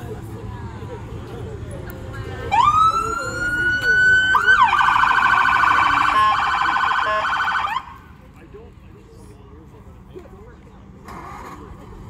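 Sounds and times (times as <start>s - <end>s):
emergency vehicle siren: 2.4s - 8.1s.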